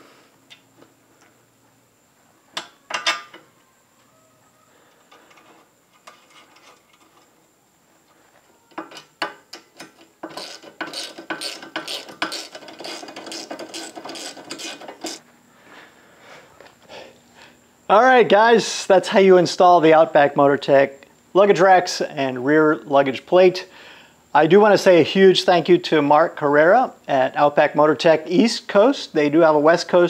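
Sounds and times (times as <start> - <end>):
ratchet wrench clicking: 9.6 - 15.2.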